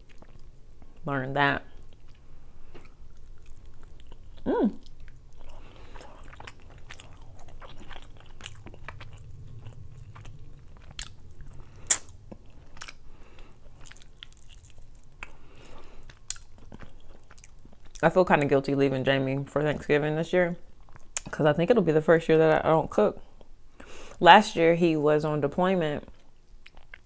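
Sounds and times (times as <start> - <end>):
close chewing and biting: 0.0 - 1.0, 1.8 - 18.0, 26.1 - 27.0
wet mouth clicks: 11.9 - 13.0.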